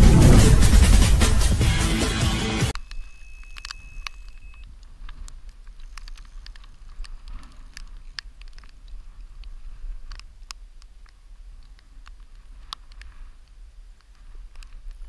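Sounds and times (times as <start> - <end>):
steady high tone: 0.0 - 4.3.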